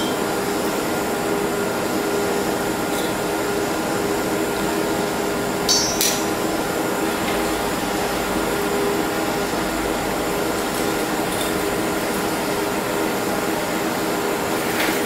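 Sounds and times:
steady machine hum: 0:00.0 - 0:14.8.

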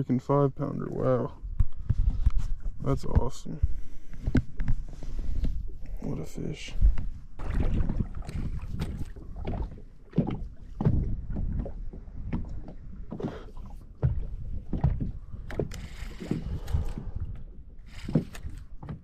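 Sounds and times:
water slapping against boat hull: 0:06.7 - 0:19.0
sharp knocks on hull: 0:07.4 - 0:13.3, 0:14.0 - 0:15.7.

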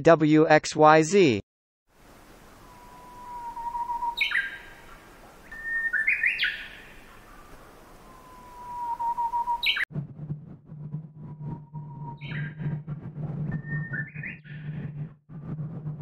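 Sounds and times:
nightingale singing: 0:02.6 - 0:09.9, 0:12.0 - 0:12.6.

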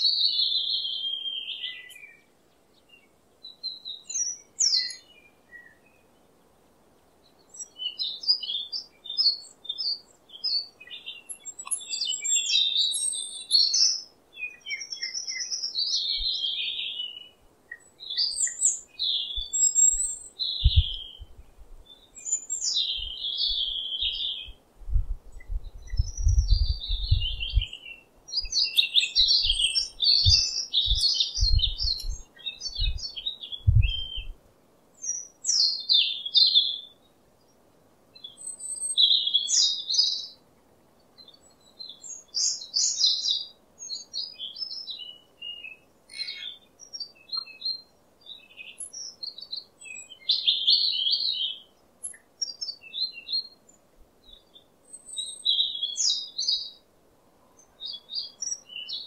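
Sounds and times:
robin singing: 0:00.0 - 0:59.0.

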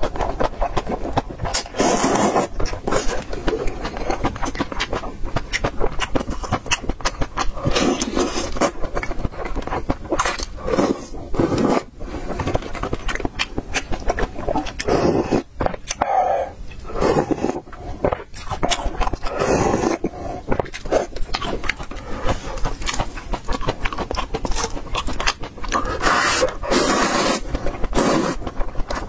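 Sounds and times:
slurping and chewing noodles: 0:00.0 - 0:29.0
lip smacks: 0:12.8 - 0:16.9.

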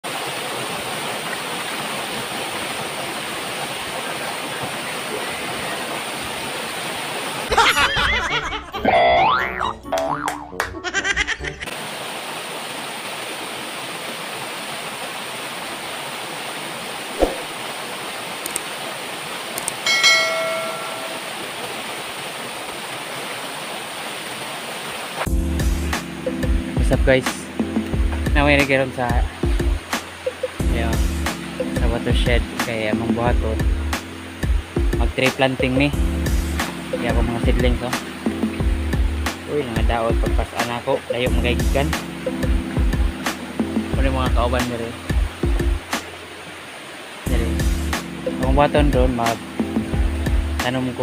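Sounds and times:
waterfall splashing into pool: 0:00.0 - 0:08.6, 0:11.6 - 0:27.5, 0:28.2 - 0:35.6, 0:36.2 - 0:51.0
faint clicks: 0:18.4 - 0:18.7, 0:19.6 - 0:19.8
bright ringing chime: 0:19.9 - 0:21.4.

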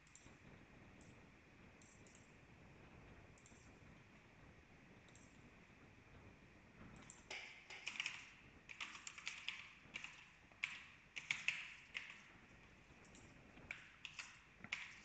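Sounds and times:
computer keyboard typing: 0:03.4 - 0:03.8, 0:06.9 - 0:15.0.

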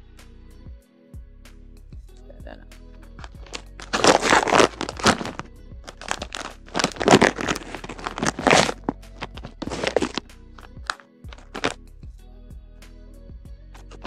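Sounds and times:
background music: 0:00.0 - 0:14.0
plastic pouch crinkling: 0:03.2 - 0:10.2, 0:10.8 - 0:11.8.

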